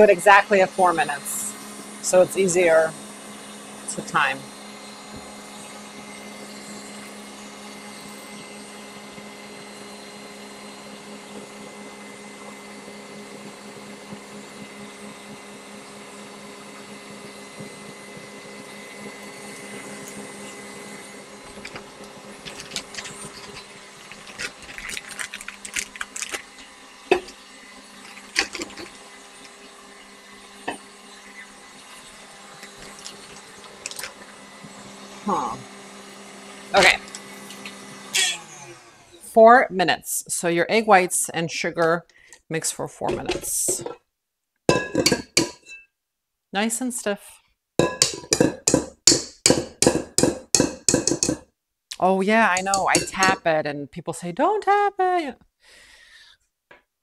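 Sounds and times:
stand mixer running: 0.0 - 39.3
plastic piping bag crinkling: 21.5 - 26.7.

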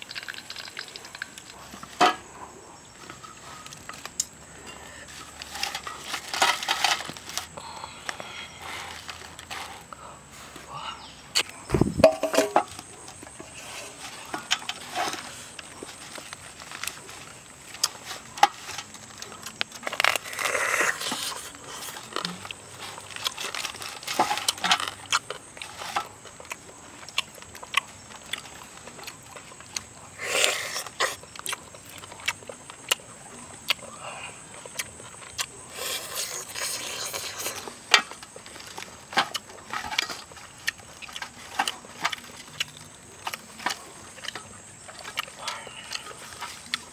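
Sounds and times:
crisp skin crackling: 14.7 - 33.1.

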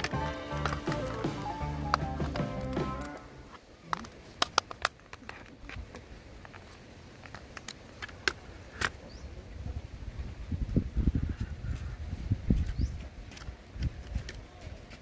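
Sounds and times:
low rumbling handling noise: 0.0 - 9.0.

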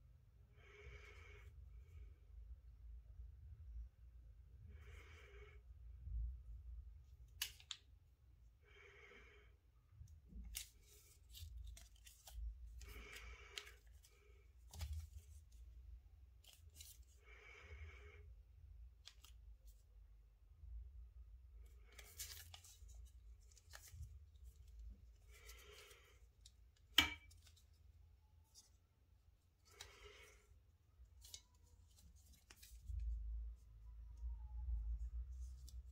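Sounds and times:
soft breaths: 8.4 - 20.0, 21.5 - 35.9.

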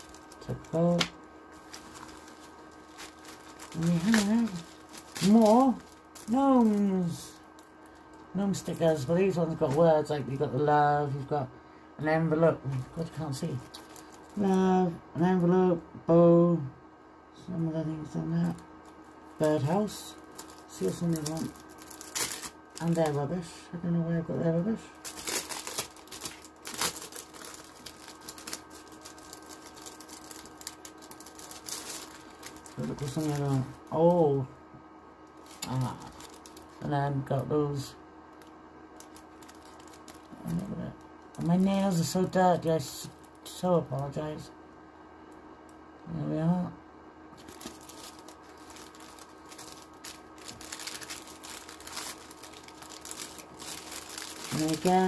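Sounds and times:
plastic packaging crinkling: 0.0 - 10.6, 12.7 - 15.4, 18.4 - 23.4, 25.0 - 34.2, 35.3 - 37.4, 38.3 - 43.5, 47.4 - 55.0.

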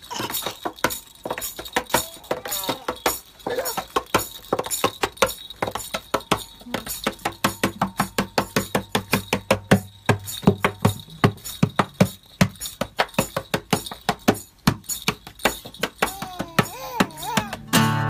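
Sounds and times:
acoustic guitar strummed hard: 17.6 - 18.0.

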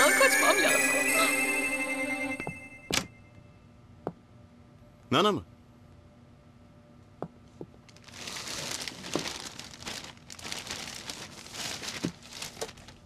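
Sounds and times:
cloth and paper rustling: 8.0 - 13.0.

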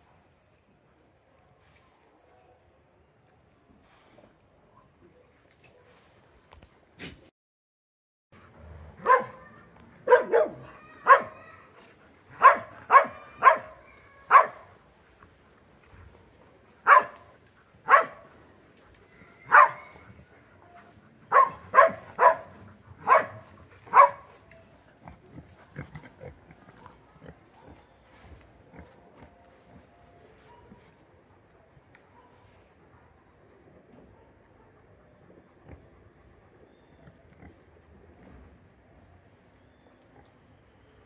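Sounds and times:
dog barking: 9.0 - 11.5, 12.4 - 14.7, 16.8 - 18.3, 19.4 - 20.0, 21.3 - 24.3, 30.4 - 30.9, 32.1 - 32.5.

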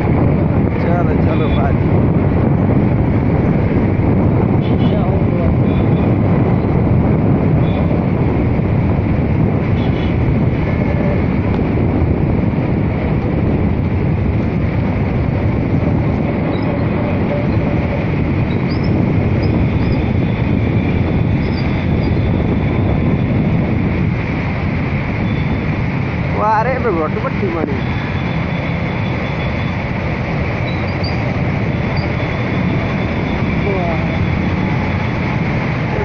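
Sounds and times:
vehicle rumble and tyres on road: 0.0 - 36.0
wind on microphone: 0.0 - 36.0.

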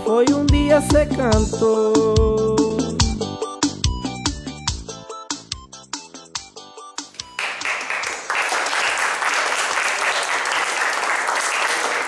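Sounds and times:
small group clapping: 7.1 - 12.0.

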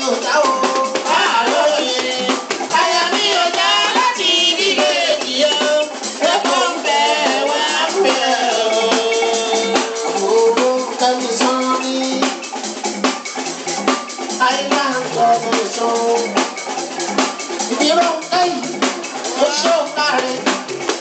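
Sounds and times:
fast dense drumming: 0.0 - 21.0.

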